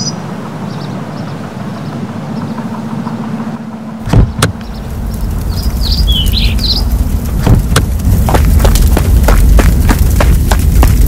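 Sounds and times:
birds chirping: 0.0 - 11.0
rumble of flames: 0.2 - 11.0
sharp thumps: 4.0 - 4.8, 7.4 - 11.0.

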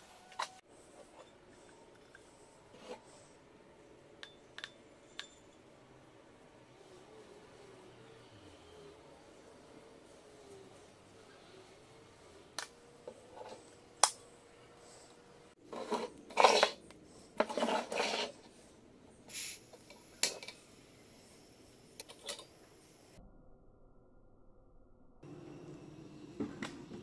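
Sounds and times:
metal scraping and handling: 15.6 - 18.6.

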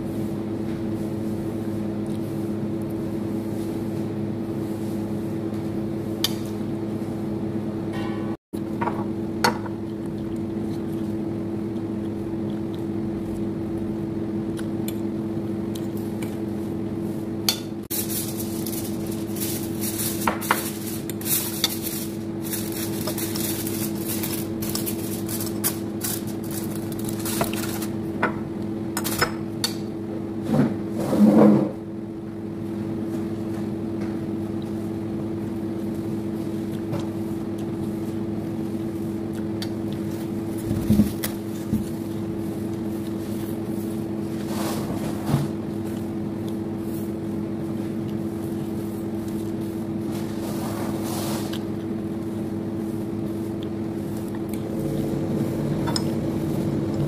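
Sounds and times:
steady low hum: 0.0 - 57.0
eating sounds: 9.8 - 13.8.

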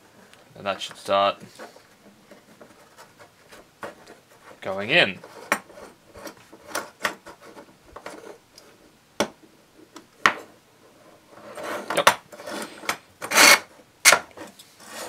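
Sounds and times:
plastic scraping on metal rod: 0.9 - 8.4, 11.3 - 15.0.

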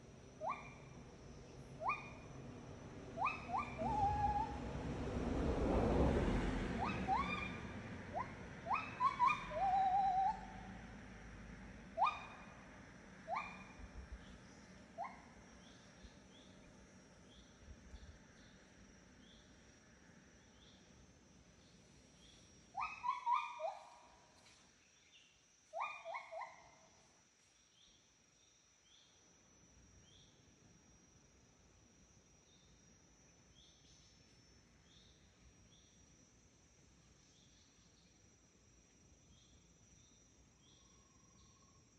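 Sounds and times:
high insect drone: 0.0 - 41.9
birds whistling: 3.2 - 4.6, 6.8 - 7.6, 8.2 - 10.6, 22.8 - 24.0.

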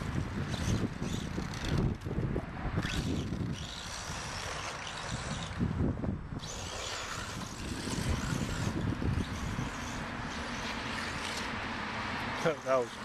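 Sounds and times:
wind rumbling on microphone: 0.0 - 11.6
electric rc car driving: 0.0 - 13.0.

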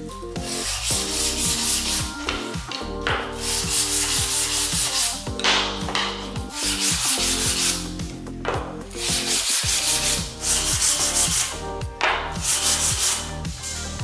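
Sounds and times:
sandpaper rubbing wood: 0.4 - 8.0, 8.6 - 14.0.

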